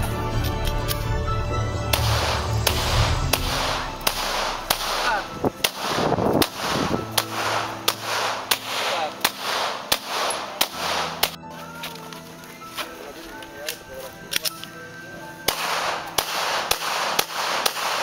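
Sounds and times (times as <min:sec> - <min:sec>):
pistol shots: 0:01.9 - 0:11.4, 0:15.4 - 0:18.0.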